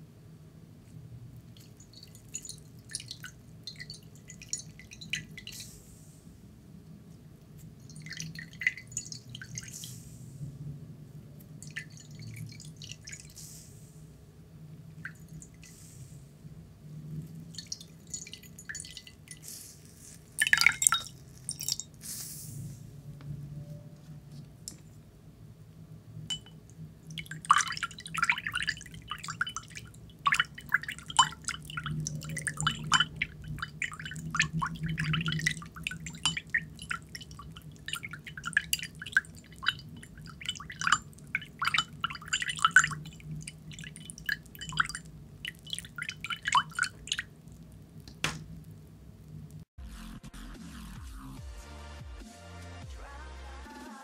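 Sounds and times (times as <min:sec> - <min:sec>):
water dripping into ceramic bowl: 0:01.4 - 0:05.6, 0:07.8 - 0:09.8, 0:11.6 - 0:13.4, 0:15.0 - 0:15.8, 0:17.2 - 0:19.4, 0:20.4 - 0:22.0, 0:26.2 - 0:48.8
water splash: 0:27.2 - 0:47.3.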